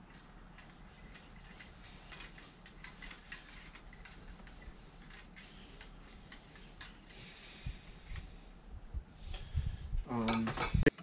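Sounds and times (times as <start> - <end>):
cleaning rod scraping in barrel: 0.1 - 8.5.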